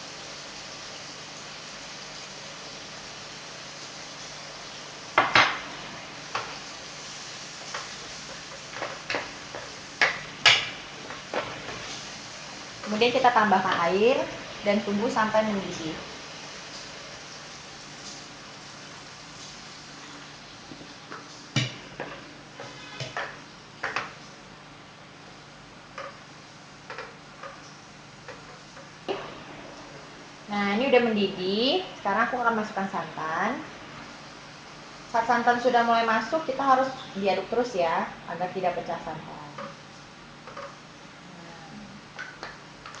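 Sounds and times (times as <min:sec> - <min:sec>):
spices sizzling: 0:00.0 - 0:41.4
spatula scraping a frying pan: 0:22.0 - 0:23.4.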